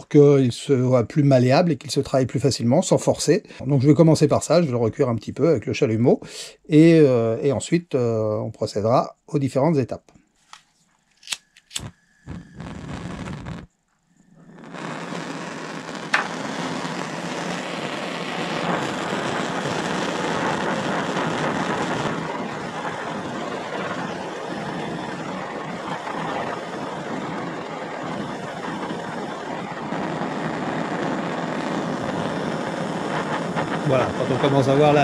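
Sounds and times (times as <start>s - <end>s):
sharp click: 11.2s - 11.9s
blowtorch flame hissing: 11.4s - 35.0s.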